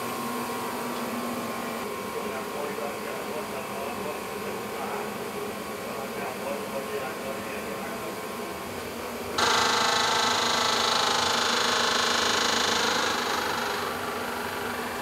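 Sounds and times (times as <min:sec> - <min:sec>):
high electric buzz: 0:09.4 - 0:15.0.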